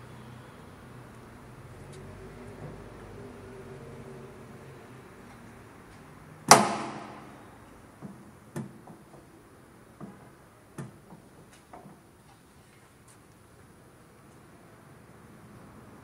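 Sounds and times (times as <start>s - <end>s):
light metal clicks and knocks: 8.0s - 9.4s, 10.0s - 12.1s.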